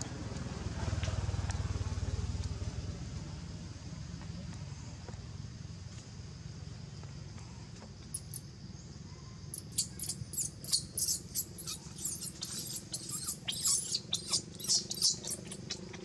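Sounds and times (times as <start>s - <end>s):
baby monkey squealing: 9.5s - 16.0s.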